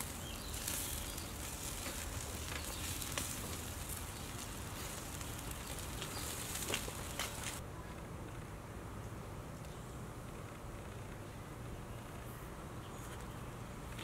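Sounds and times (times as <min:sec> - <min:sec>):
chicken wings sizzling on grill: 0:00.0 - 0:07.6.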